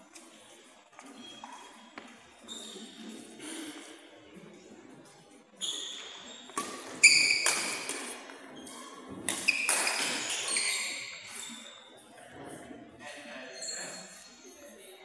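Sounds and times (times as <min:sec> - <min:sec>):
shoe squeaks: 0:01.0 - 0:03.9, 0:05.6 - 0:11.9, 0:13.5 - 0:14.5
racket striking shuttlecock: 0:06.6 - 0:08.1.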